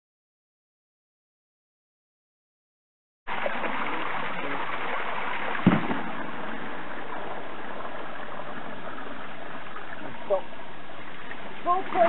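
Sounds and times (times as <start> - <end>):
water rushing from pipe: 3.3 - 12.0
thump: 5.6 - 6.2.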